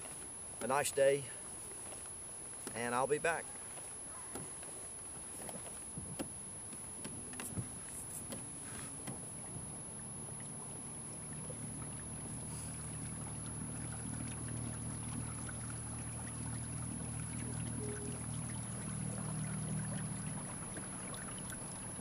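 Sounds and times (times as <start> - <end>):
low steady hum: 0.0 - 22.0
water along a kayak hull: 0.0 - 22.0
light knocks and clicks: 1.8 - 3.0, 3.6 - 9.3.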